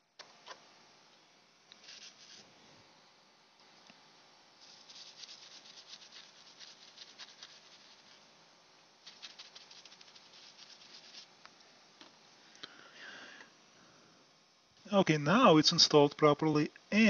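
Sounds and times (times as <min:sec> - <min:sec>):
brush scratching circuit board: 0:01.8 - 0:02.5, 0:04.6 - 0:08.2, 0:09.0 - 0:11.3.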